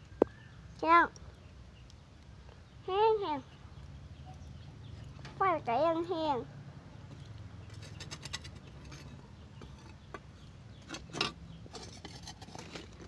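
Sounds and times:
charcoal clinking against metal tongs: 0:07.7 - 0:10.2, 0:10.8 - 0:13.0.

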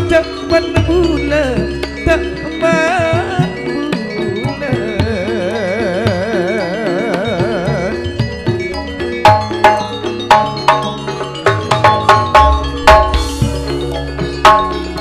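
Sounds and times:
gamelan music: 0:00.0 - 0:15.0.

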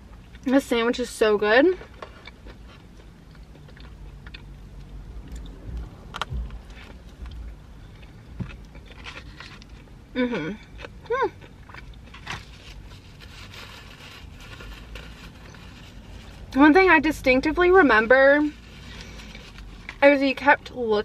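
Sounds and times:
chewing with small crunches: 0:01.8 - 0:13.6.

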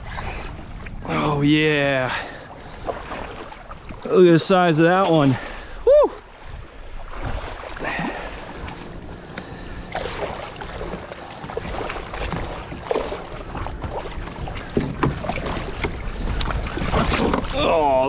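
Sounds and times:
fish thrashing water splashing: 0:07.1 - 0:18.0.

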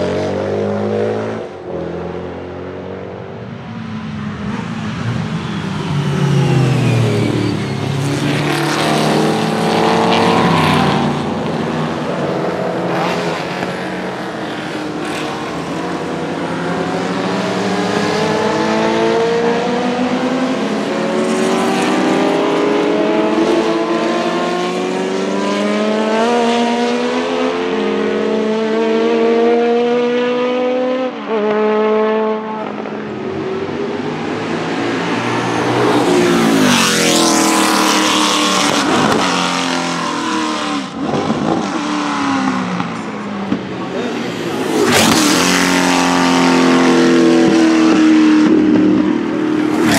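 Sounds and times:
racing car engine accelerating: 0:03.8 - 0:49.9.

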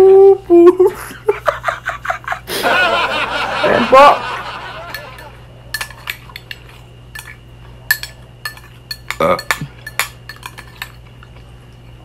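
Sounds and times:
spoon scraping a bowl: 0:04.9 - 0:11.0.

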